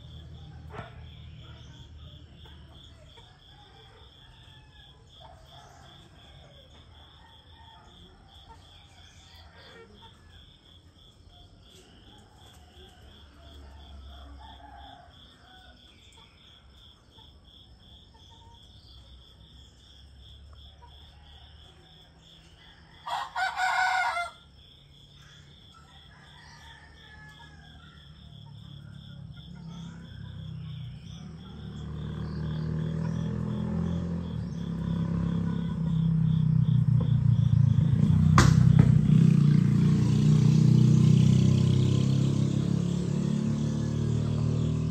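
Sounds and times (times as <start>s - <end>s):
vehicle engine approaching: 0.0s - 17.0s, 25.2s - 44.9s
rooster crowing: 3.2s - 10.0s, 12.0s - 16.0s, 20.8s - 24.6s, 25.8s - 30.8s.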